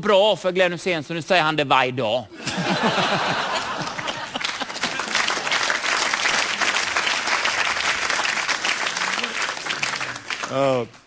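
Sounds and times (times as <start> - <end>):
audience applauding: 2.8 - 11.0.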